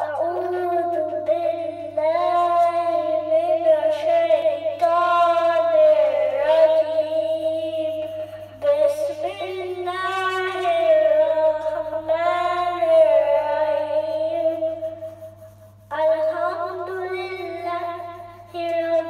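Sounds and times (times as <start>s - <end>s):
boy chanting into a microphone: 0.0s - 19.0s.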